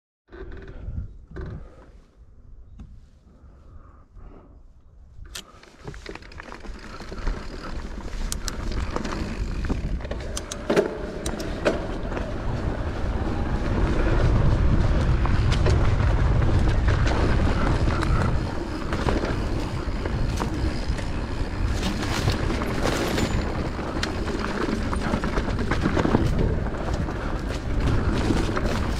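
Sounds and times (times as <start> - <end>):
wind on microphone: 0.6 - 5.4, 7.3 - 28.9
bike rattling: 5.4 - 28.9
tyres rolling over gravel: 5.8 - 28.9.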